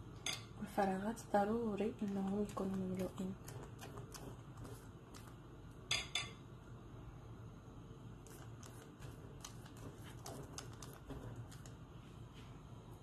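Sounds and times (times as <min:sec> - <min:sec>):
pastry brush strokes in pan: 0:01.8 - 0:05.4, 0:08.1 - 0:12.6.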